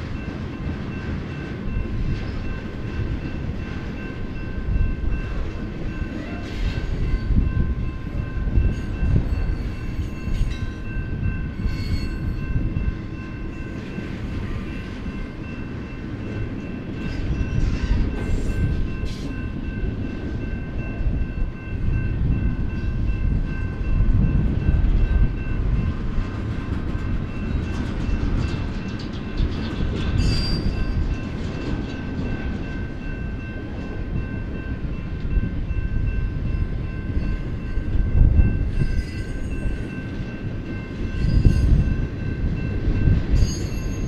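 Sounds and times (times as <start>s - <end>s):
train wheels rumbling on rail: 0.0s - 44.0s
high ringing tones: 0.2s - 26.0s, 30.1s - 44.0s.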